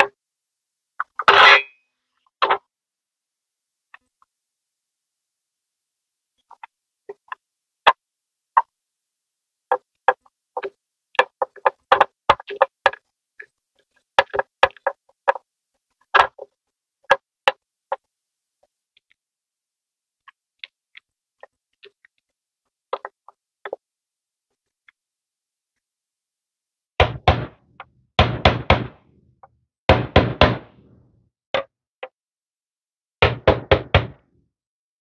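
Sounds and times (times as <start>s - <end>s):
hammer knocking on rod: 27.0s - 29.0s, 29.9s - 30.9s, 33.2s - 34.2s.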